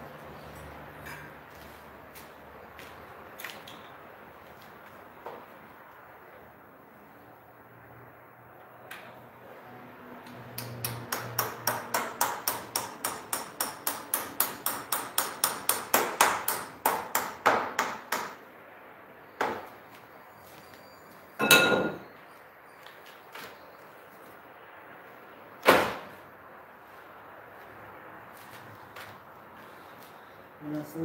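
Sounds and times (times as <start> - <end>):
ringing metal clang: 21.4 - 22.1.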